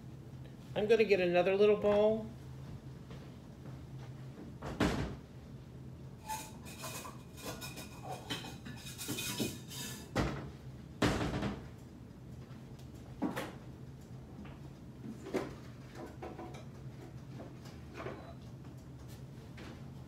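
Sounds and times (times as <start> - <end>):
dishes clinking: 6.3 - 10.2.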